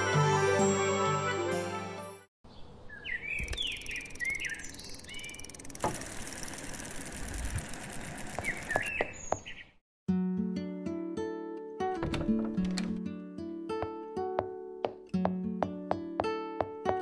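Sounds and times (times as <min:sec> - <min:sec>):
birds chirping: 0:02.5 - 0:05.8, 0:07.8 - 0:09.8
bicycle freewheel clicking: 0:03.6 - 0:08.9.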